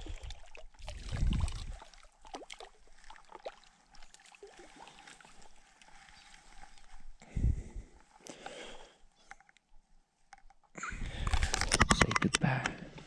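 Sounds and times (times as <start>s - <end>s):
water splashing and trickling: 0.0s - 7.1s.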